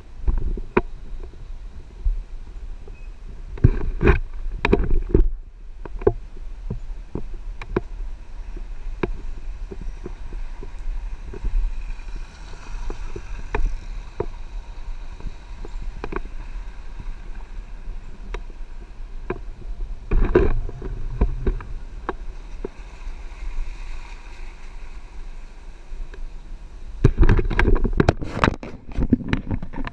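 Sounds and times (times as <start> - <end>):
vehicle rumble on dirt track: 0.0 - 29.9
knocks and rattles over bumps: 19.2 - 22.9.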